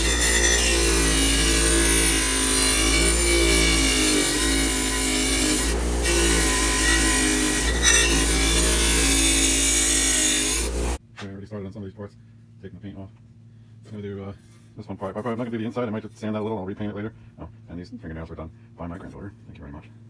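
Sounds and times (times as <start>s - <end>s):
wire wheel scrubbing metal: 0.0s - 11.0s.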